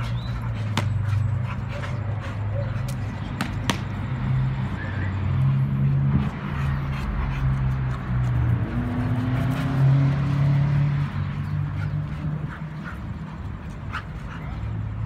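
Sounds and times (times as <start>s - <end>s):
dogs barking: 0.0s - 4.0s.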